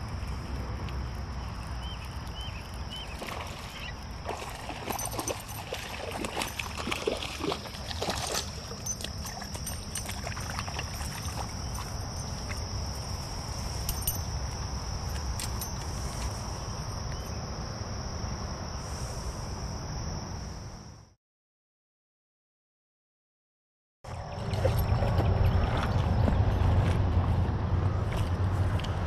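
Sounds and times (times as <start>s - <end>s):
insects droning: 0.0s - 21.2s.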